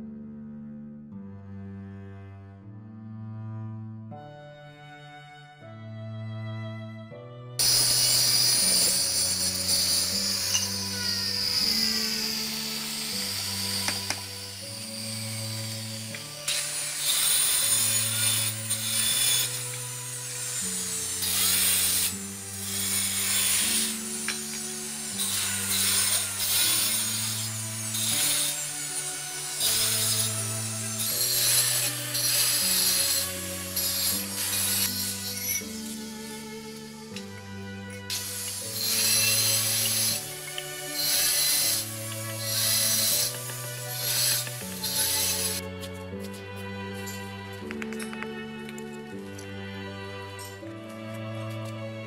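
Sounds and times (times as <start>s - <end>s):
slow string music: 0.0s - 52.0s
power tool whining: 7.6s - 46.4s.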